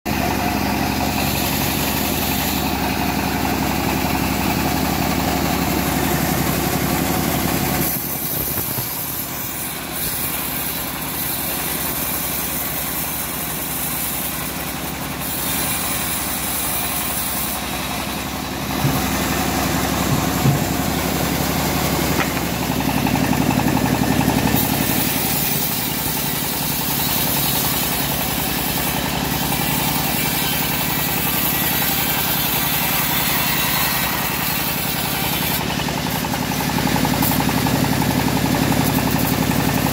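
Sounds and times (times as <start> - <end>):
engine-driven bandsaw running: 0.1 - 39.9
sharp knocks: 18.7 - 19.2, 20.0 - 20.9.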